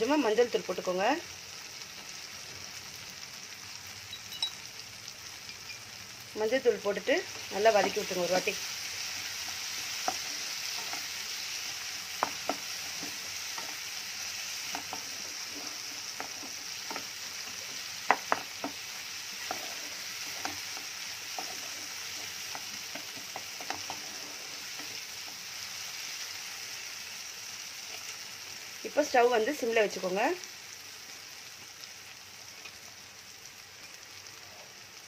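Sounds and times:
vegetables sizzling in oil: 0.0s - 35.0s
spatula tapping and scraping pan: 9.5s - 11.2s, 12.1s - 13.8s, 14.6s - 25.4s.

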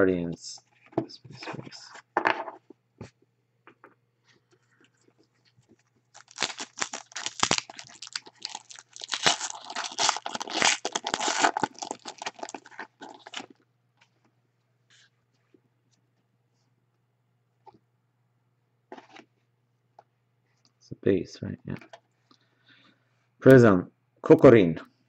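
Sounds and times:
foil wrapper crinkling: 6.1s - 13.6s.

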